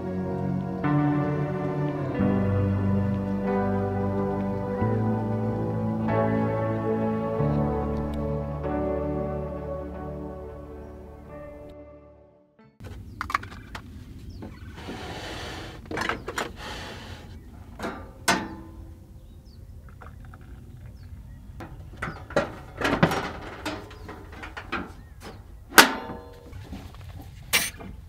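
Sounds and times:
hiss: 14.8 - 15.8, 16.6 - 17.4.

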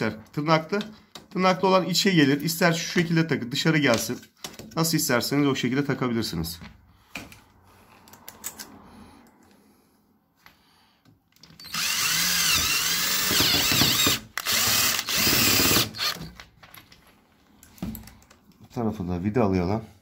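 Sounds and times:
power drill whining: 11.5 - 16.4.

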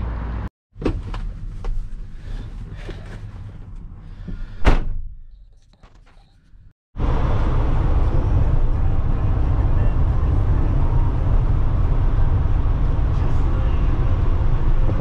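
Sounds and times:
truck engine and road noise: 0.0 - 4.7, 5.3 - 15.0
sharp thump: 4.6 - 5.1.

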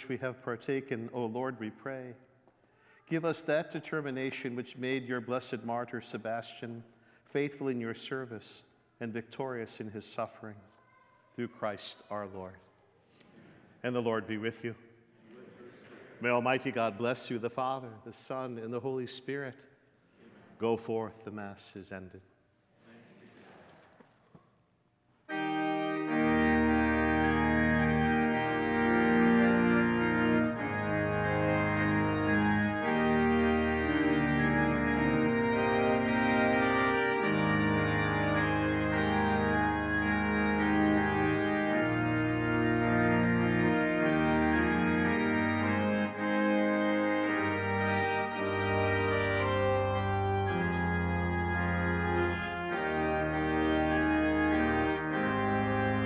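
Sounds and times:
church organ chords: 0.0 - 2.3, 3.0 - 10.2, 16.2 - 19.3, 25.3 - 56.0.

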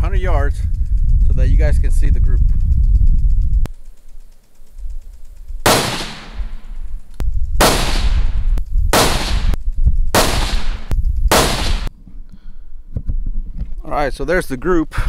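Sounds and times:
rifle shots echoing: 5.6 - 6.8, 7.6 - 11.9.

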